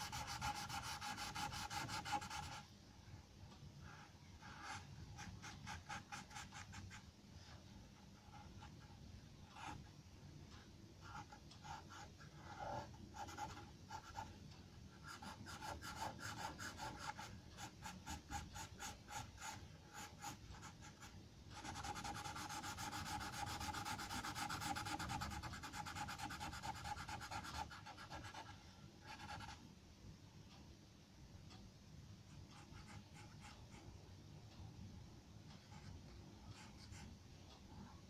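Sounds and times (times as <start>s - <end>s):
pencil scratching on paper: 0.0s - 2.6s, 3.8s - 9.8s, 11.0s - 29.6s, 32.6s - 33.9s.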